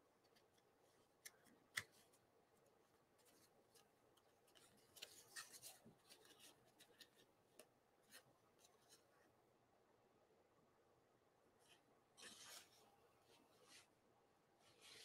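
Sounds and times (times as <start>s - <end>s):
cardstock rustling: 3.2s - 8.3s.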